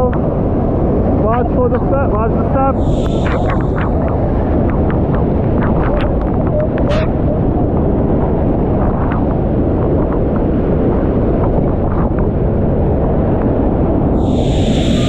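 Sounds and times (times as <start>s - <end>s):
wind buffeting microphone: 0.0s - 15.0s
hiss with thin high whine: 2.8s - 4.5s, 14.2s - 15.0s.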